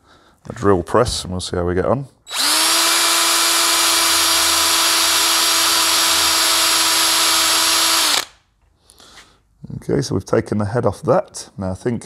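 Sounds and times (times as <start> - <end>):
power drill whining: 2.3 - 8.4.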